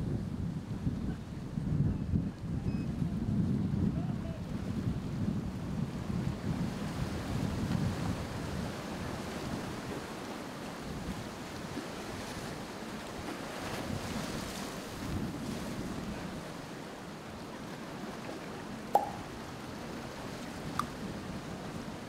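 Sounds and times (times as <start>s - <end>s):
wind: 0.0s - 22.0s
sharp click: 19.0s - 19.3s.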